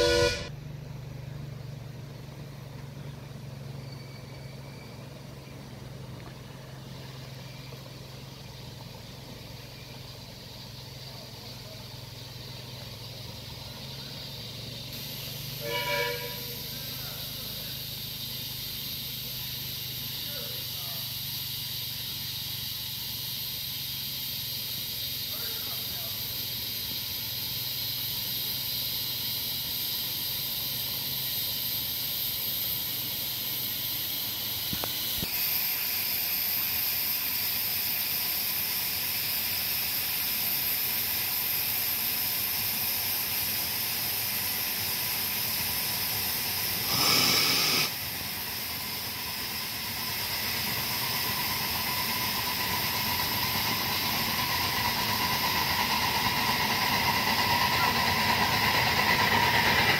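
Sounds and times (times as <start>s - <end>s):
high-pitched steam blast: 0.0s - 0.6s, 13.0s - 59.9s
steam hissing from locomotive: 0.0s - 0.6s, 1.6s - 59.9s.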